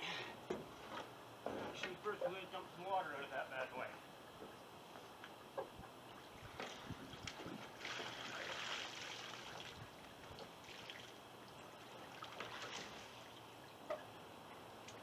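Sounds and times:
water pouring and trickling: 6.1s - 15.0s.

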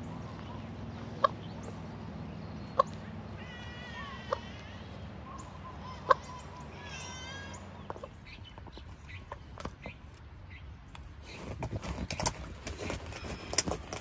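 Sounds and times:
bird calling: 0.0s - 14.0s
dog gnawing coconut husk: 10.9s - 14.0s.

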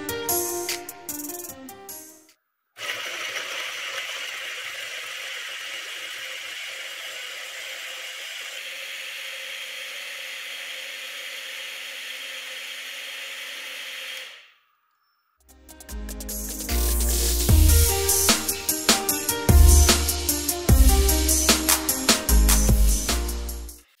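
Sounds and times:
mixer grinder whirring: 2.8s - 14.5s.

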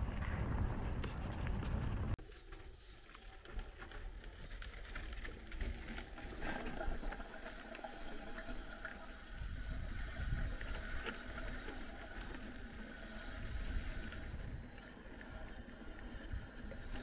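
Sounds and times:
wind buffeting microphone: 0.0s - 2.2s
bike tyres crunching on stones: 0.0s - 8.7s
bike clicks and rattles: 0.0s - 17.0s.

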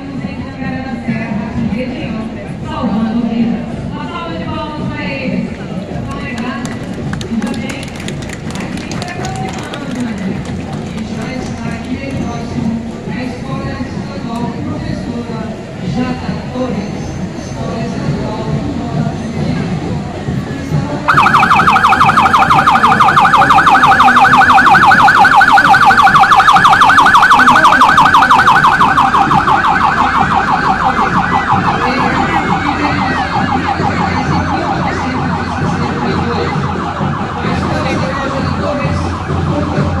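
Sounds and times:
ambulance siren warbling: 21.1s - 40.0s.

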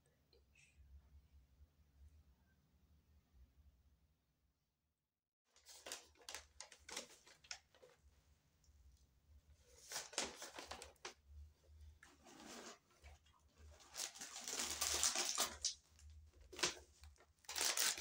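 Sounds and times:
paper bag crinkling: 13.7s - 15.8s, 17.4s - 18.0s.

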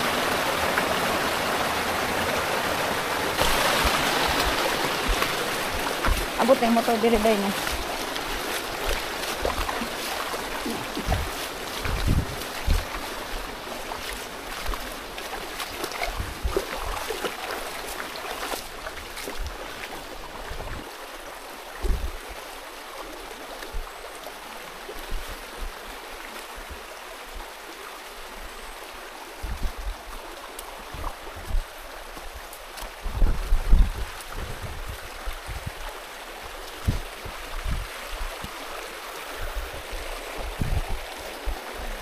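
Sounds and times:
stream running over rocks: 0.0s - 42.0s
footsteps splashing in water: 3.4s - 21.0s, 29.6s - 39.1s.

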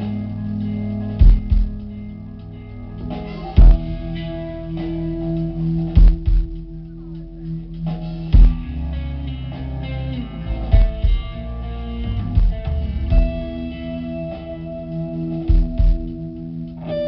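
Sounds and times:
live metal band playing: 0.0s - 17.0s
heavy drum hits: 1.2s - 1.9s, 3.6s - 4.2s, 6.0s - 6.6s, 8.4s - 8.8s, 10.7s - 11.4s, 12.2s - 13.7s.

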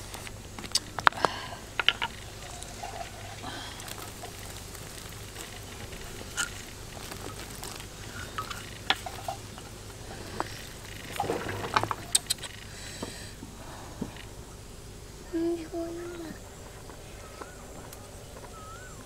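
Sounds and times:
soup simmering and bubbling: 0.0s - 12.8s
wooden spatula scraping a pan: 2.0s - 11.9s.

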